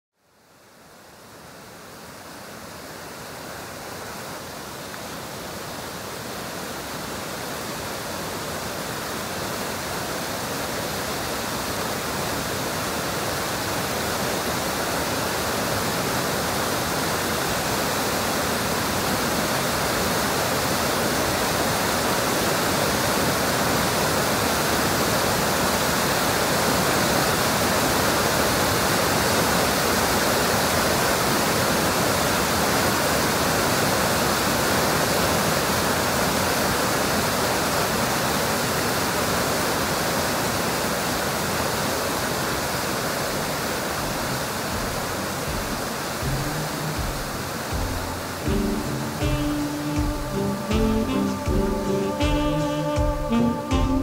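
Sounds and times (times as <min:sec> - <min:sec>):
steady rushing noise: 0:43.4 - 0:49.3.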